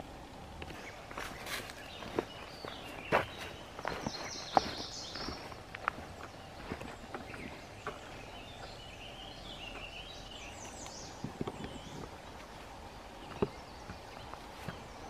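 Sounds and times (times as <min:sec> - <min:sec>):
bird chirping: 0:00.6 - 0:15.0
footsteps crunching on dry leaves: 0:00.7 - 0:08.5.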